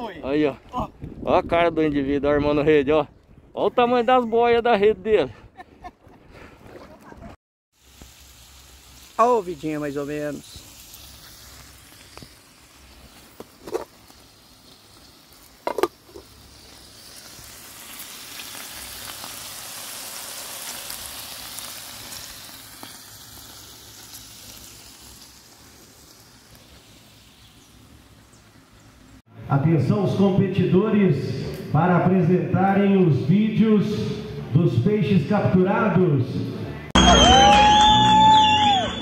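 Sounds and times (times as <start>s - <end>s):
meat sizzling in a pan: 7.8s - 28.2s.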